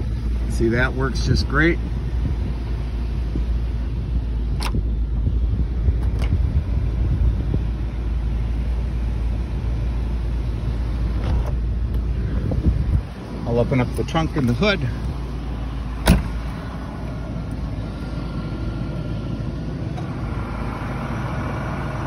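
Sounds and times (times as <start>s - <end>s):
low cabin rumble: 0.0s - 22.0s.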